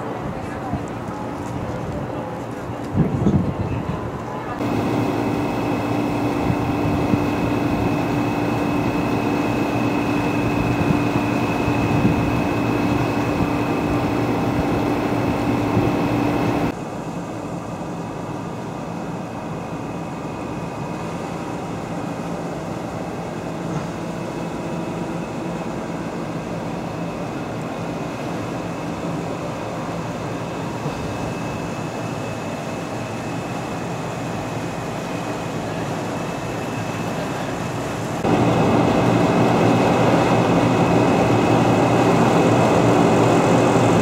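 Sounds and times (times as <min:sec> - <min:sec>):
machinery hum with high whine: 0:00.0 - 0:44.0.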